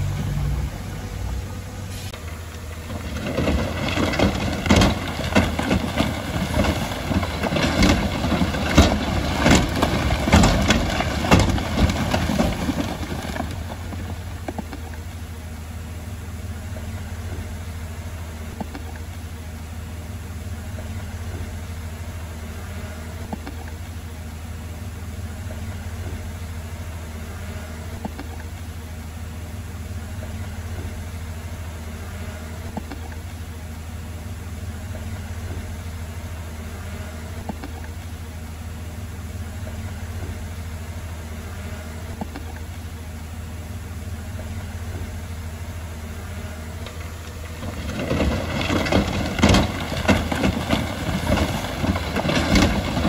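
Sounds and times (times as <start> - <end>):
diesel engine running: 0.0 - 53.0
rock and steel clattering: 2.8 - 14.6, 47.6 - 53.0.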